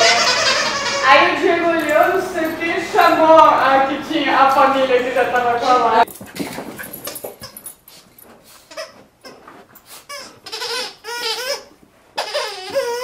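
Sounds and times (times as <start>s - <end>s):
dog toy squeaking: 0.0s - 2.1s, 8.6s - 13.0s.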